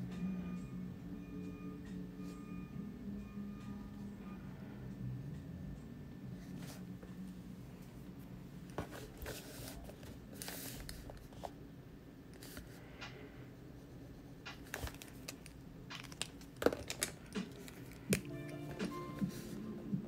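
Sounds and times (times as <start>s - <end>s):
hand brushing paper: 8.8s - 11.3s, 18.8s - 19.6s.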